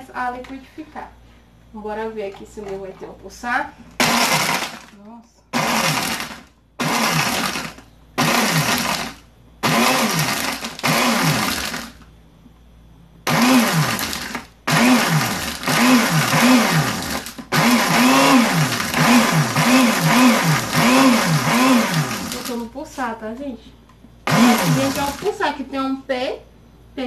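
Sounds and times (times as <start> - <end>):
blender grinding eggshells: 4.0 - 12.1, 13.3 - 22.7, 24.2 - 25.4.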